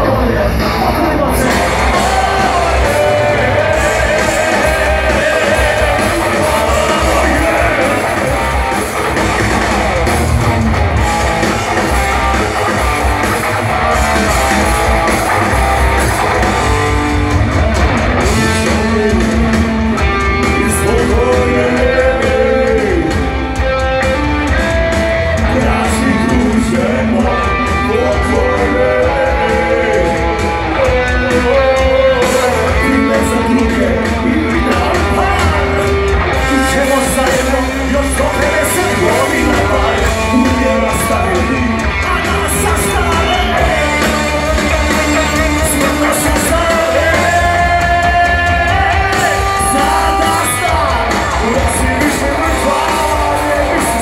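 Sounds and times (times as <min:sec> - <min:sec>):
person singing: 0:00.0 - 0:08.9, 0:18.2 - 0:23.6, 0:25.4 - 0:54.0
live rock band playing: 0:00.0 - 0:54.0.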